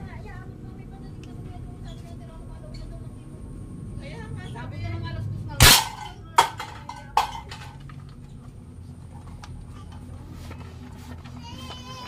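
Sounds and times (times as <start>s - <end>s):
toy gun bangs: 5.6s - 7.7s.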